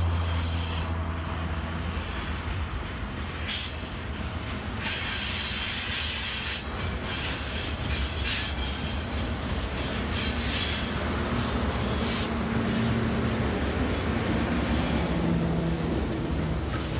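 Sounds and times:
high wheel squeal: 0:00.0 - 0:01.1, 0:04.8 - 0:12.3, 0:13.9 - 0:15.3
diesel locomotive engine drone: 0:00.0 - 0:16.9
train wheels clattering on rails: 0:00.0 - 0:16.9.

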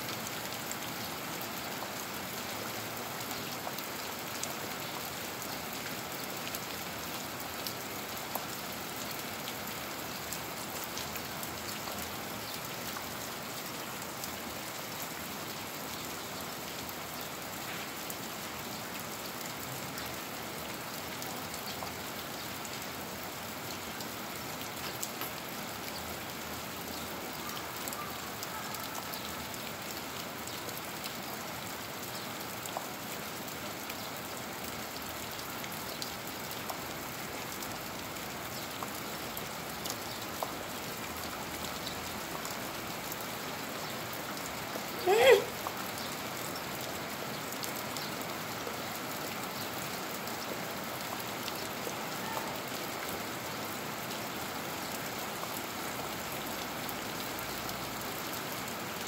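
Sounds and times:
rain on concrete: 0:00.0 - 0:59.0
raindrop ticks: 0:37.5 - 0:43.1.

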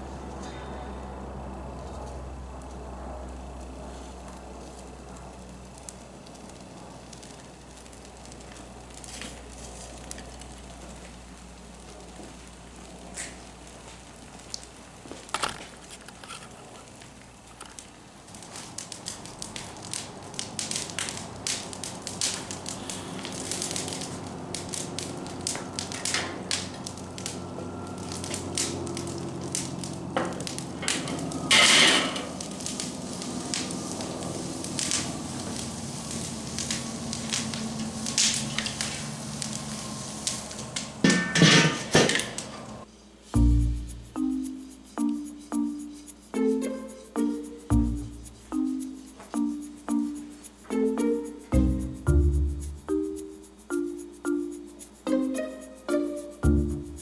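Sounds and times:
charcoal fire crackling and popping: 0:01.5 - 0:57.0
metal grill lid clanking: 0:41.0 - 0:42.4.

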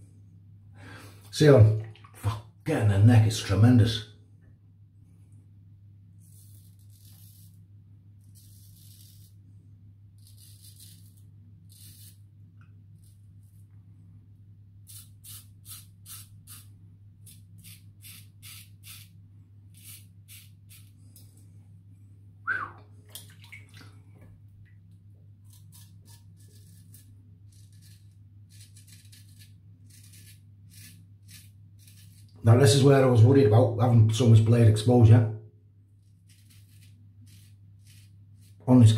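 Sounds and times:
steady low hum: 0:00.0 - 0:38.9
razor scraping stubble: 0:06.2 - 0:07.6, 0:08.2 - 0:09.4, 0:10.2 - 0:12.2, 0:14.8 - 0:21.0, 0:25.4 - 0:32.4, 0:36.0 - 0:38.6.

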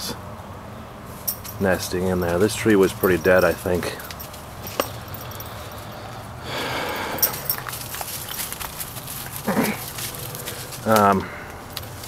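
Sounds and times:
twigs snapping: 0:07.2 - 0:12.0
footsteps rustling through leaves: 0:07.3 - 0:11.2.

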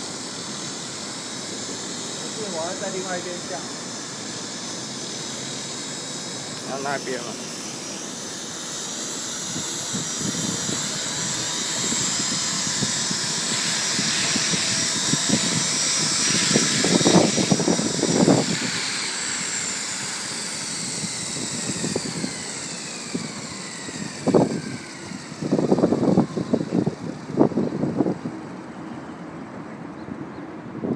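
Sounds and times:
model helicopter rotor whining: 0:00.0 - 0:29.6
gusty rotor wash: 0:05.6 - 0:28.6.

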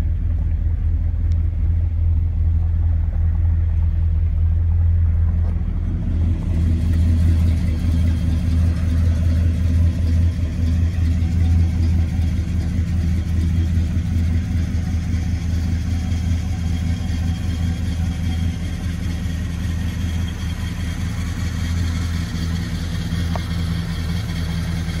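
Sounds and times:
car engine idling: 0:00.0 - 0:25.0.

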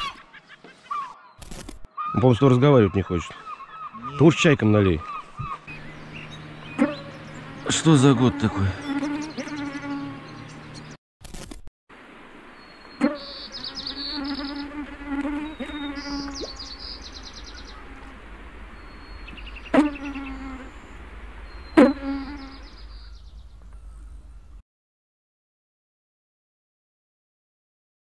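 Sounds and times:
fly buzzing: 0:05.7 - 0:10.8, 0:12.8 - 0:22.9.

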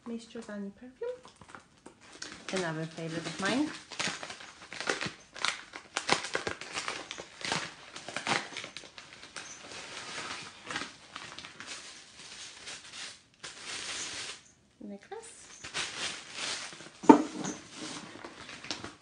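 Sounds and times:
packaging crinkling: 0:01.0 - 0:14.5, 0:15.4 - 0:19.0.

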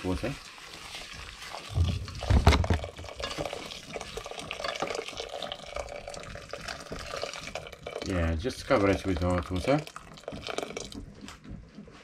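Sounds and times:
utensil scraping and stirring pot: 0:00.0 - 0:08.1
hot water pouring into pot: 0:00.0 - 0:11.2.

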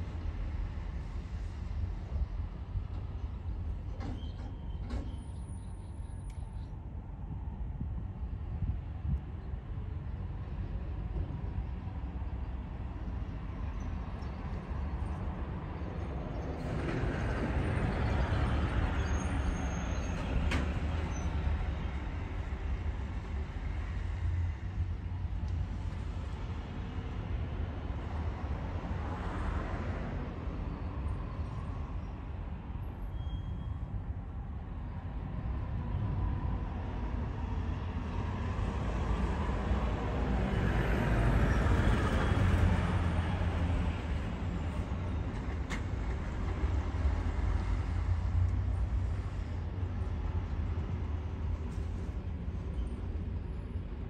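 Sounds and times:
background traffic: 0:00.0 - 0:54.0.

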